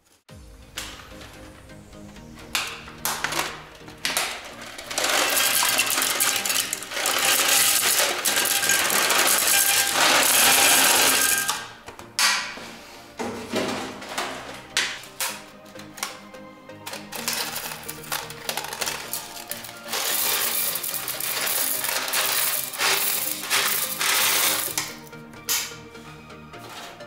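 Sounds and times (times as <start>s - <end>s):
straw sticks rattling into toilet bowl: 3.0s - 12.4s, 16.8s - 25.7s.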